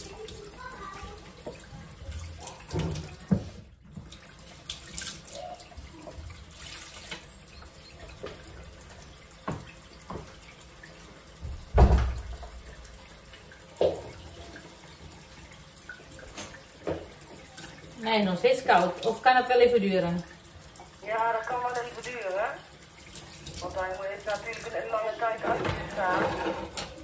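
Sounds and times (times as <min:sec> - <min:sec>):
tap water splashing into sink: 0:00.0 - 0:27.0
knocks and thumps: 0:11.4 - 0:12.5.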